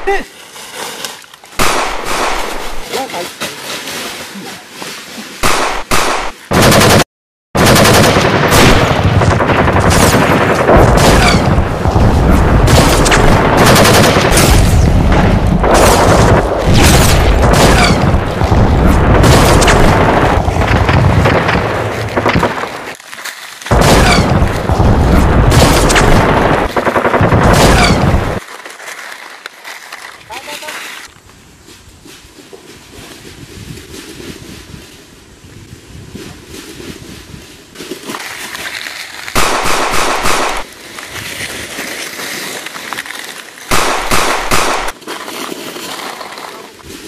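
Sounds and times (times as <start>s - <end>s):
rapid automatic gunfire: 5.4s - 22.9s, 23.7s - 28.4s, 39.4s - 40.6s, 43.7s - 44.9s.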